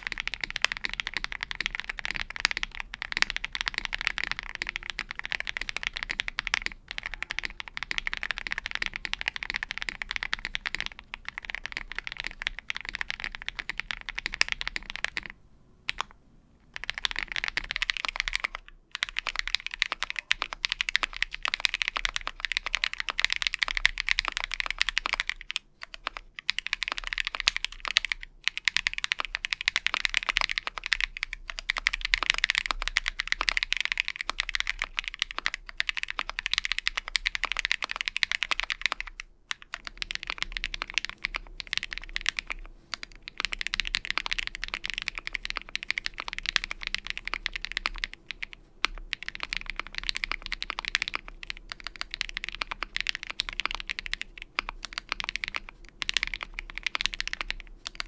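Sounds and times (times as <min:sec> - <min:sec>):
fast mechanical keyboard typing: 0:00.0 - 0:16.1, 0:16.7 - 0:58.0.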